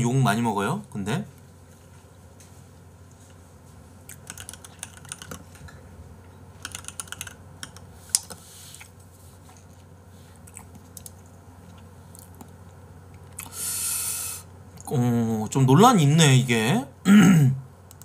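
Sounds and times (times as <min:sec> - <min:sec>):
computer keyboard key clicks: 0:04.2 - 0:05.4, 0:06.6 - 0:07.8.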